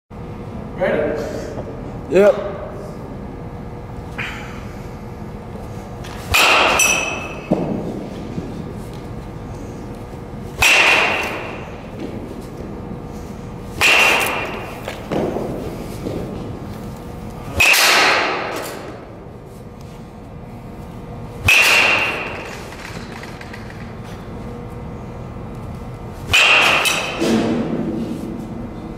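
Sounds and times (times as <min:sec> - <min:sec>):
baseball bat hitting balls: 0:06.0 - 0:19.4, 0:21.4 - 0:24.4, 0:25.8 - 0:28.6.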